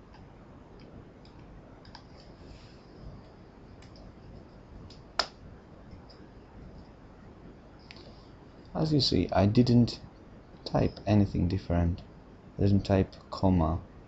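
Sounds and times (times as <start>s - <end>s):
low steady hiss: 0.0s - 14.0s
computer mouse clicks: 0.1s - 2.3s, 3.2s - 5.3s.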